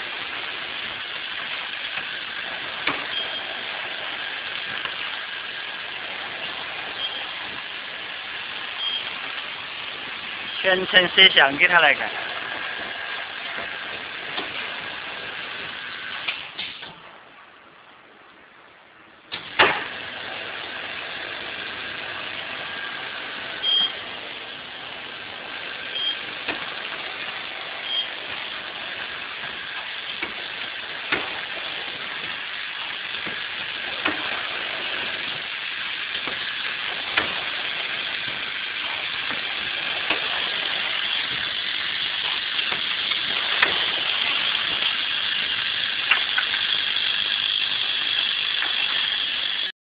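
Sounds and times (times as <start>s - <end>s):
machine hiss and hum: 0.0s - 49.7s
sharp machine knock: 19.4s - 20.0s, 31.0s - 31.4s, 36.1s - 47.2s.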